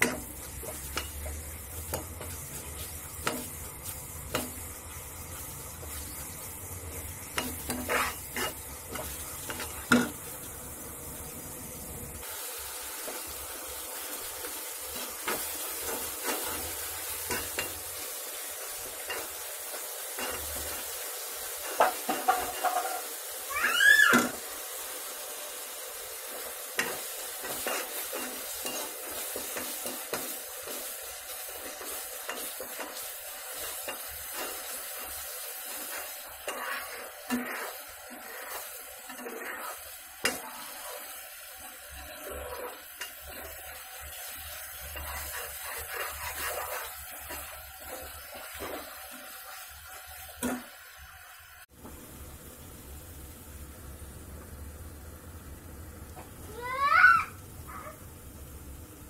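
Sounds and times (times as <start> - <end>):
spoon stirring and scraping: 0.0 - 10.2, 14.0 - 23.2, 26.3 - 50.7
tomatoes sizzling in oil: 0.0 - 59.0.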